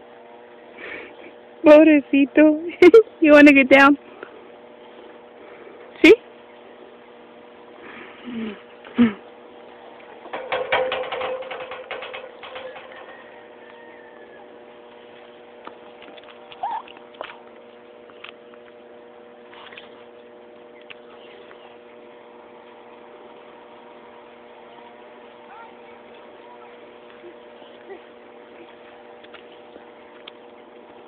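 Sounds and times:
steady hum: 0.0s - 31.0s.

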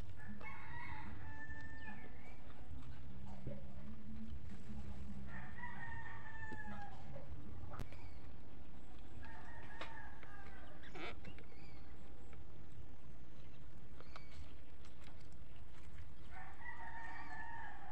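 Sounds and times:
low hum: 0.0s - 17.9s
rooster crowing: 0.2s - 2.1s, 5.3s - 7.1s, 16.3s - 17.9s.

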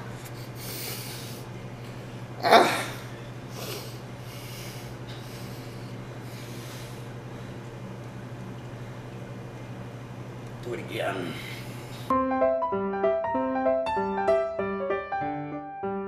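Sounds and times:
low electrical hum: 0.0s - 12.1s
soft breaths: 3.0s - 7.7s.

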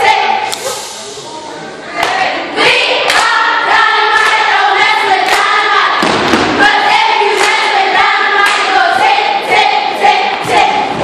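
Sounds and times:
girls chanting in unison: 0.0s - 0.8s, 1.9s - 11.0s
rhythmic claps and stomps: 3.0s - 3.4s, 4.1s - 11.0s.

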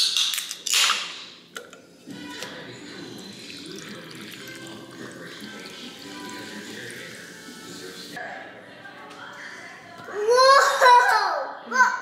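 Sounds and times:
fizzy drink poured over ice: 2.9s - 8.1s.

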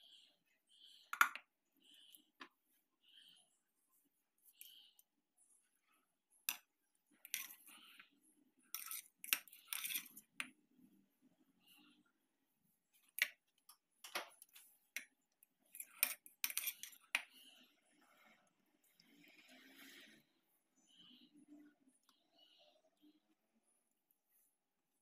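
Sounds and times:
fork clinking and scraping on plate: 8.7s - 10.5s, 15.7s - 17.1s.

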